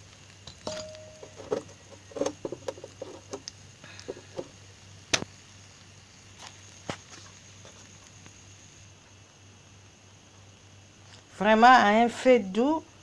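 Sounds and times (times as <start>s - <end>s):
low steady hum: 0.0s - 6.8s.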